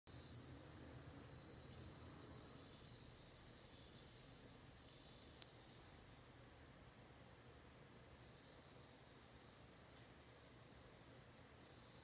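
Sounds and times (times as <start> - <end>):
crickets trilling: 0.1 - 6.4.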